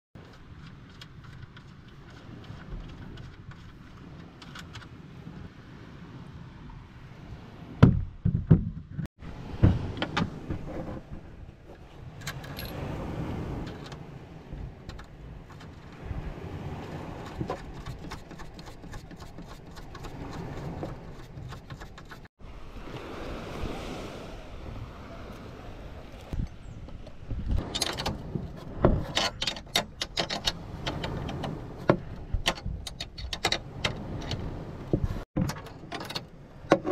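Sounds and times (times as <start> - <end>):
wind: 0.1 - 36.9
surf: 12.7 - 29.1.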